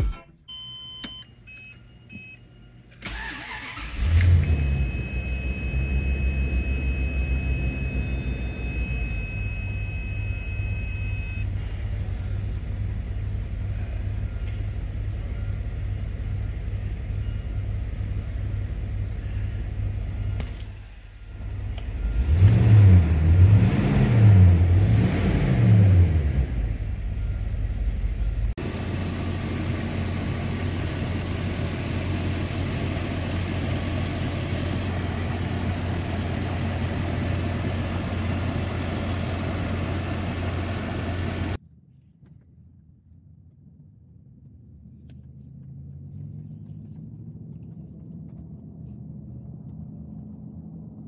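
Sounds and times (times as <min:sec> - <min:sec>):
car engine starting and idling: 0:00.0 - 0:41.6, 0:44.4 - 0:51.0
engine revving: 0:21.5 - 0:27.2.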